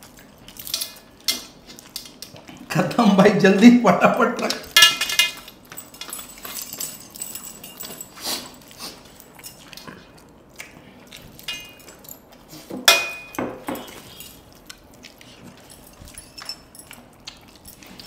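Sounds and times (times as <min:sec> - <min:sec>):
chewing: 0:00.0 - 0:02.9, 0:05.4 - 0:12.8, 0:13.7 - 0:18.0
metal bracelets clinking: 0:04.7 - 0:08.6, 0:15.6 - 0:18.0.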